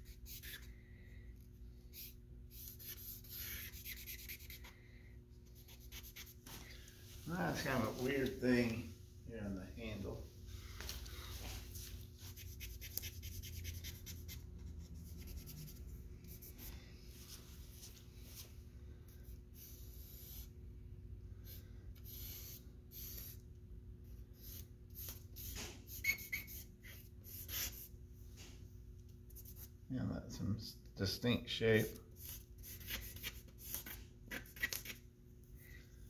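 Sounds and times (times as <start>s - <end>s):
charcoal scratching on paper: 0.0s - 0.7s, 1.9s - 4.7s, 5.5s - 6.6s, 12.2s - 16.7s, 24.3s - 27.9s, 29.3s - 29.7s, 32.2s - 35.0s
faint steady hum: 0.0s - 36.0s.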